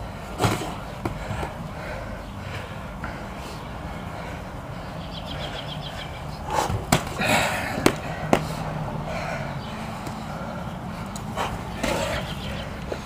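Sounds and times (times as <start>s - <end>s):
steady low hum: 0.0s - 13.0s
boxing gloves smacking: 0.4s - 1.6s, 6.5s - 8.6s.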